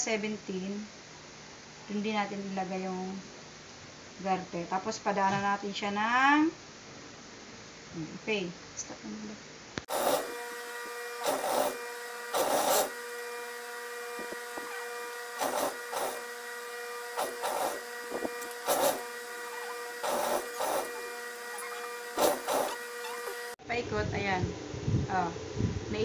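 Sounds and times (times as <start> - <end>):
sewing machine motor humming: 9.9 - 23.6
sewing machine stitching: 9.9 - 23.6.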